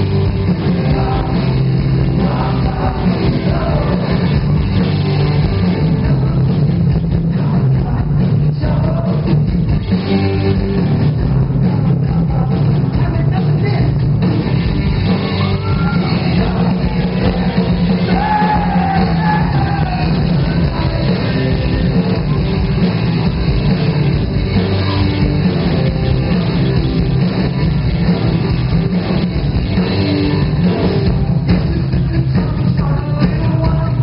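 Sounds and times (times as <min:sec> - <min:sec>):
live rock band playing: 0:00.0 - 0:34.0
person singing: 0:00.6 - 0:04.4, 0:15.4 - 0:22.1, 0:31.5 - 0:34.0.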